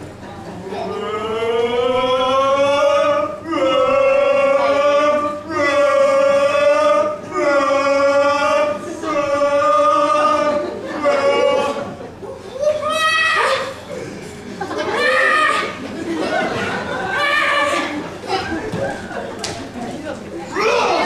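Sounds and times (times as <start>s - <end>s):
voices singing long held notes: 0.9s - 12.1s.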